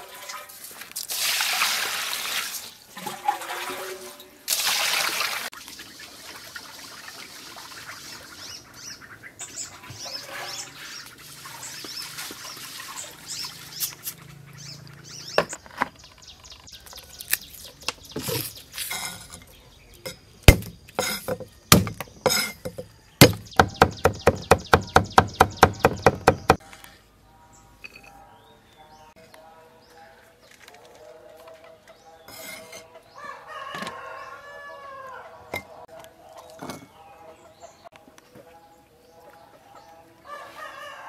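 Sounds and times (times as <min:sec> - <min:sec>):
water pouring into metal strainer: 0:00.0 - 0:05.5
cleaver chopping on wooden board: 0:20.5 - 0:26.6
knocks: 0:20.5 - 0:26.6.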